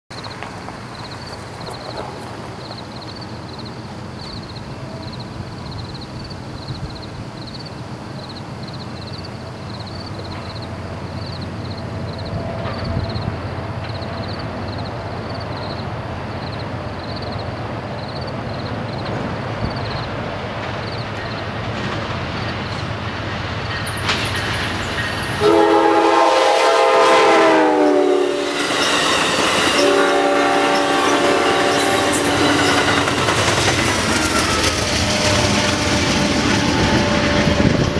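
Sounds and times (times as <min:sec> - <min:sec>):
insects chirping: 0:00.1 - 0:27.0, 0:27.9 - 0:37.9
train rumble and clickety-clack: 0:00.1 - 0:37.9
train horn blasts: 0:25.4 - 0:33.2, 0:34.9 - 0:37.9.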